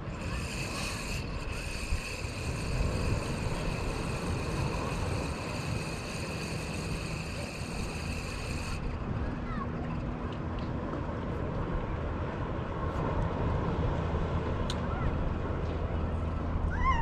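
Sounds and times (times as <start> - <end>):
faint high whine: 0.0 - 10.1
wind buffeting microphone: 0.0 - 17.0.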